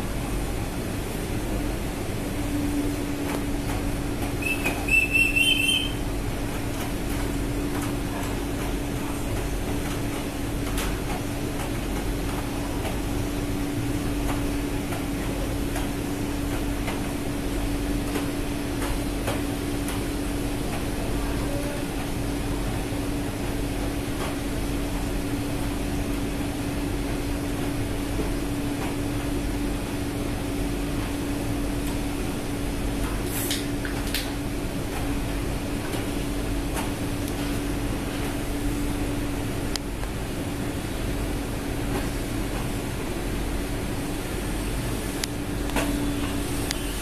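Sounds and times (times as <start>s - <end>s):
ship machinery drone: 0.0s - 7.6s.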